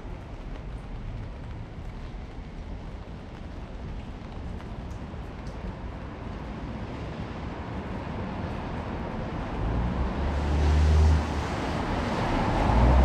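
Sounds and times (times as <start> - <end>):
passing vehicle rumble: 6.9 - 13.0.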